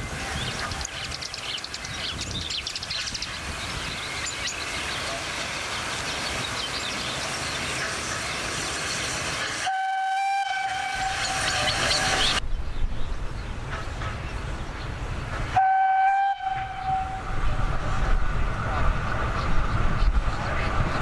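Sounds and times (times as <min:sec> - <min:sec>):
steam locomotive hissing: 0:02.2 - 0:12.4
steam whistle blast: 0:09.6 - 0:12.4, 0:15.6 - 0:17.2.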